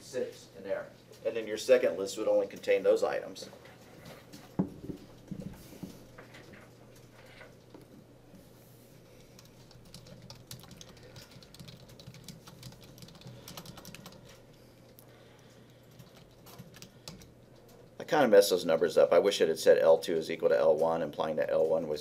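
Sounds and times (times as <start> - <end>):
typing on a computer keyboard: 9.4 - 14.4, 15.7 - 17.3.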